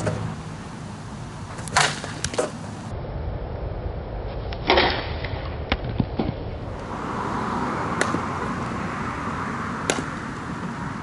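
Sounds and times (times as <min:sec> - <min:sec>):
steady outdoor hiss: 0:00.0 - 0:11.0
bat cracking ball: 0:01.6 - 0:02.6, 0:07.8 - 0:08.8, 0:09.7 - 0:10.8
bat clicking on bunt: 0:07.9 - 0:08.7, 0:09.8 - 0:10.8.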